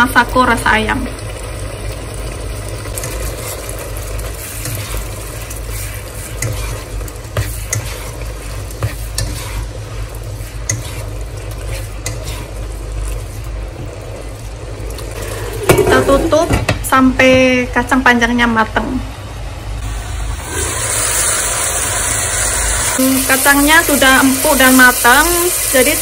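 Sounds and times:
food sizzling: 0.0s - 26.0s
spatula scraping a wok: 3.0s - 14.5s.

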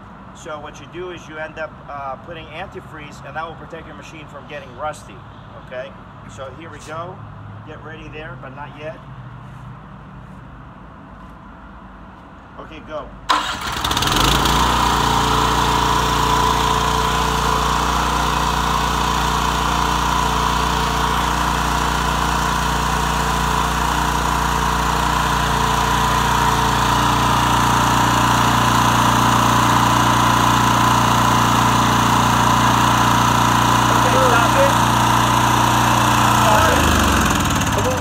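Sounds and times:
pressure washer engine running: 13.3s - 38.0s.

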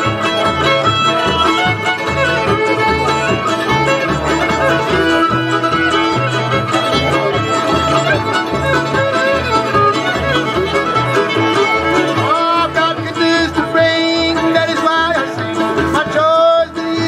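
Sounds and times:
fiddle melody with slides: 0.0s - 17.0s
guitar: 0.0s - 17.0s
mandolin: 0.0s - 17.0s
upright bass steady beat: 0.0s - 17.0s.

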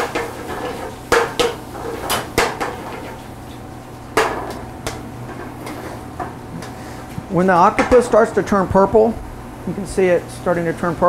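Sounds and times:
seafood sizzling: 0.0s - 6.9s.

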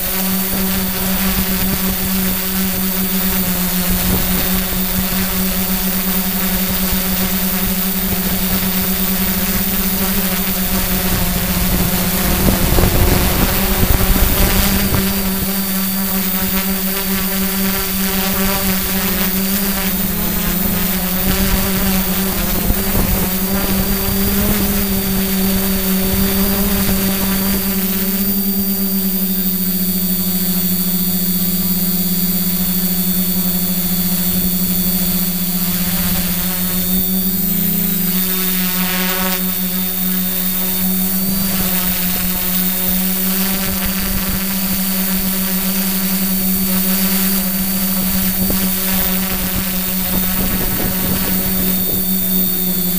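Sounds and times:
drone propellers droning: 0.0s - 52.9s
wind buffeting microphone: 3.6s - 16.0s, 19.9s - 27.8s, 47.9s - 52.9s.

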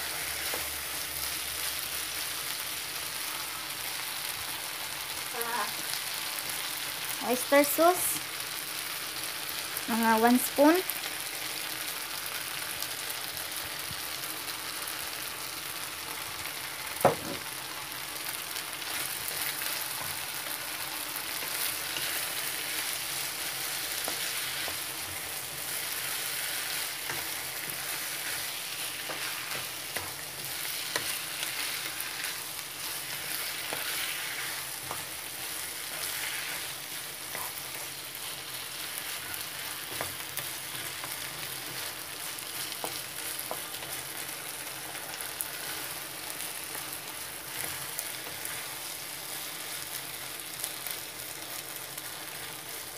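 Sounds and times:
food sizzling in frying pan: 0.0s - 52.9s
spatula scraping pan: 21.4s - 44.0s.

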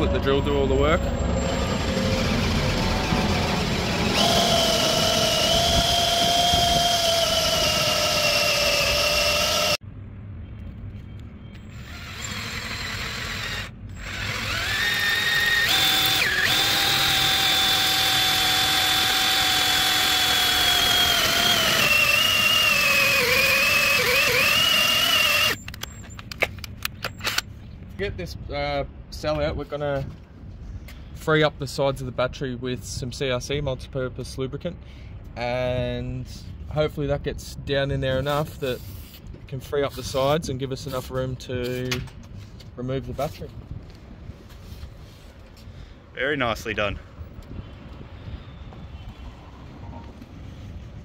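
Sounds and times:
drill with hole saw whining: 1.6s - 9.8s, 11.6s - 25.8s.

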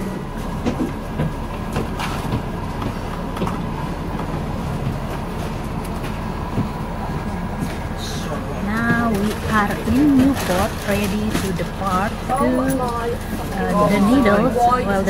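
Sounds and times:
bus engine humming: 0.0s - 15.0s
rattles and knocks of bus fittings: 0.4s - 6.8s.

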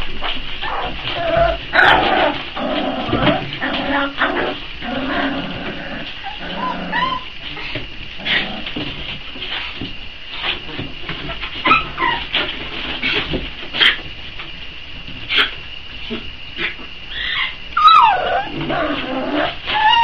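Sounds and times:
puppies whimpering and yelping: 0.6s - 2.4s, 6.0s - 7.8s, 11.3s - 12.5s, 16.6s - 20.0s.

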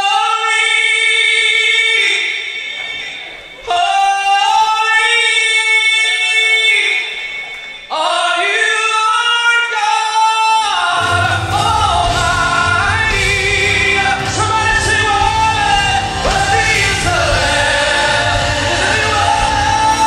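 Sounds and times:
gospel group singing: 10.8s - 20.0s
low bass accompaniment: 11.0s - 20.0s.

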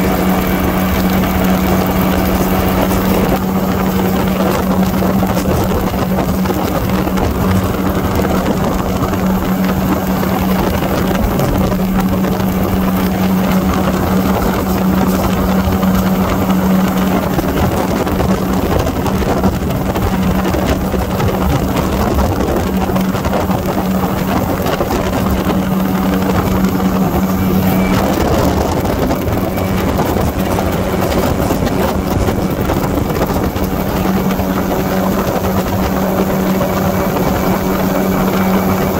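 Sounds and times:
aircraft engine and propeller hum: 0.0s - 38.9s
rushing air noise: 0.0s - 38.9s.

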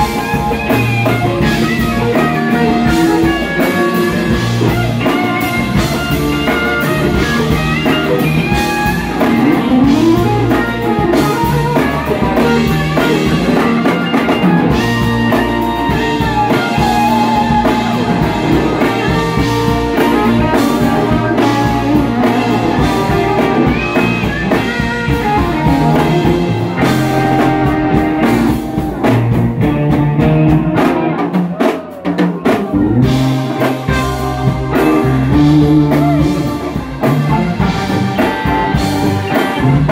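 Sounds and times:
bass guitar: 0.0s - 39.9s
drum kit: 0.0s - 39.9s
electric guitar lead lines: 0.0s - 39.9s.

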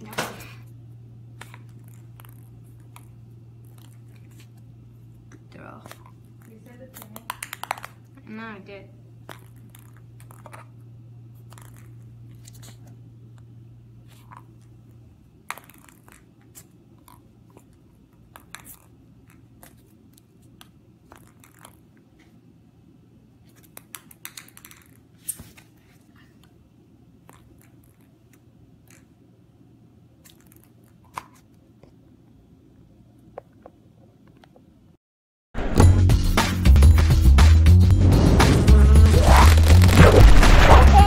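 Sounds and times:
faint low hum: 0.0s - 35.0s
ping pong ball bouncing on wood floor: 7.0s - 8.0s.

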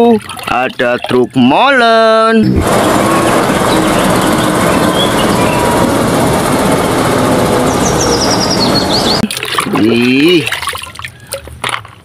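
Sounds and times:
truck diesel engine passing: 2.4s - 9.2s.

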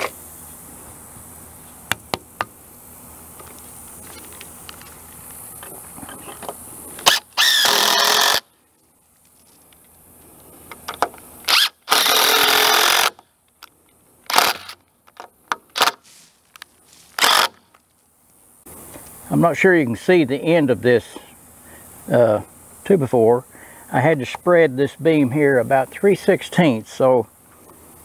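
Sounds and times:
cordless drill driving screws: 7.0s - 8.4s, 11.5s - 13.2s, 14.3s - 14.8s, 17.2s - 17.6s.

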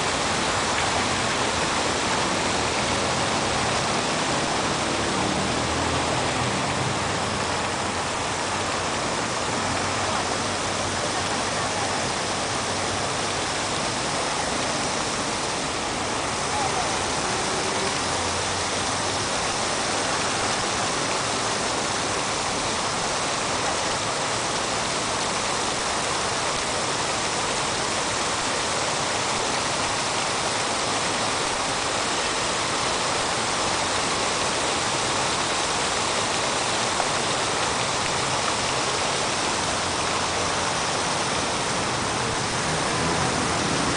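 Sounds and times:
steady rushing noise: 37.8s - 43.9s.

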